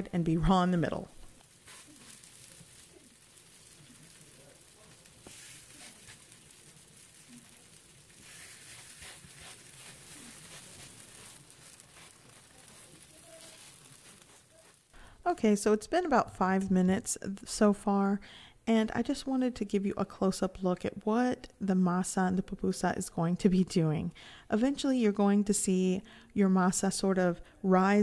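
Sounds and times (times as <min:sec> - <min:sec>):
faint sizzling on a griddle: 0:00.2 - 0:15.9
soft pats on a griddle: 0:01.2 - 0:14.9.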